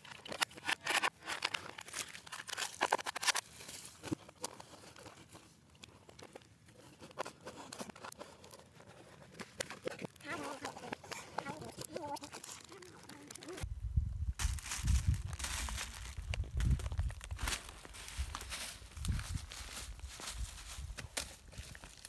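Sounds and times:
cardboard box crackling and rustling: 6.1 - 13.6, 14.4 - 22.0.

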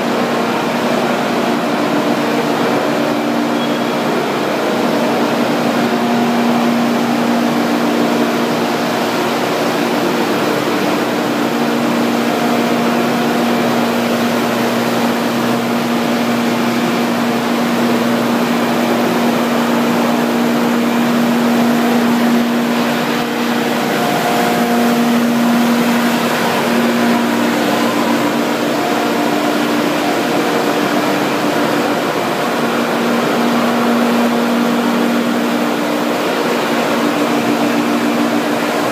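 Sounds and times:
constant mechanical rush: 0.0 - 38.9
machinery hum: 0.0 - 38.9.

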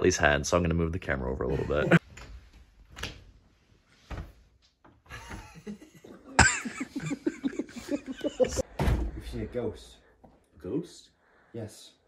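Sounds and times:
person coughing: 6.3 - 7.1.

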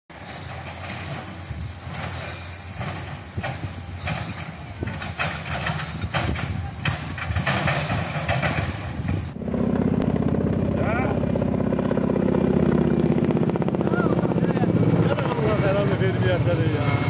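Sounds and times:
fire crackling and popping: 0.1 - 9.4
low steady rumble: 0.1 - 17.0
steady low drone: 0.1 - 17.0.

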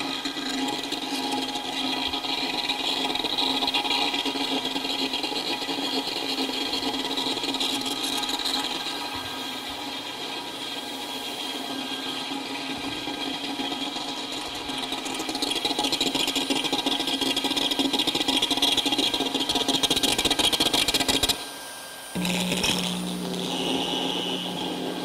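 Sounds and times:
electronic drone: 22.1 - 25.0
low steady hum: 22.1 - 25.0
fast buzzing pulse: 22.2 - 25.0.

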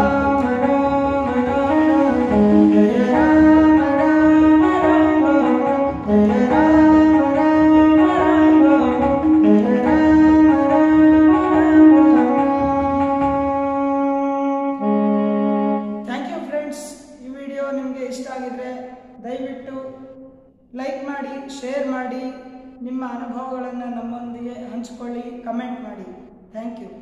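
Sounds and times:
electronic keyboard devotional melody: 0.0 - 16.1.

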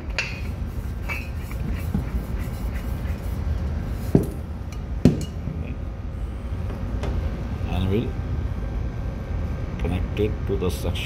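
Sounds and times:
steady low hum: 0.0 - 11.0
sharp knocks on gas cylinder: 5.0 - 5.3.

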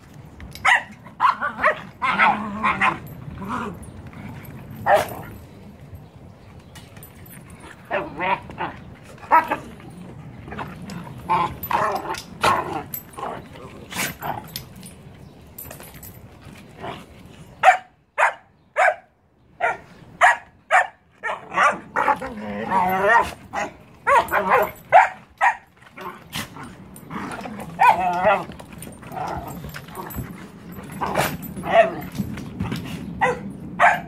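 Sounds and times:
dogs barking and yipping: 0.5 - 5.5, 17.6 - 34.0.

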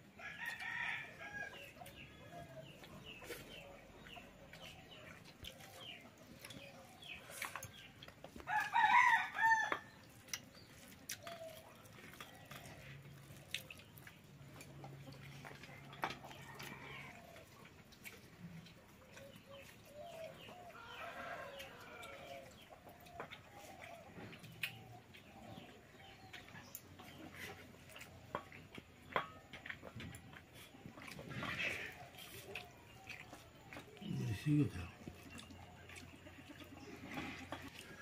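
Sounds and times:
rooster crowing: 8.5 - 9.8
hens clucking: 22.0 - 38.0.

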